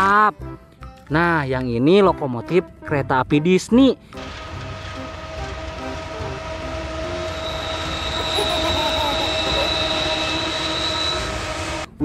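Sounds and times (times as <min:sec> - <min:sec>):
diesel freight train passing: 0:04.0 - 0:12.0.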